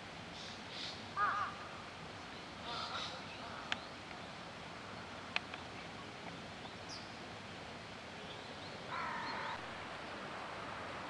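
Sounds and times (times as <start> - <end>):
outdoor background hiss: 0.0 - 11.0
crow cawing: 1.2 - 1.7, 8.9 - 9.6
small birds chirping: 2.2 - 9.7.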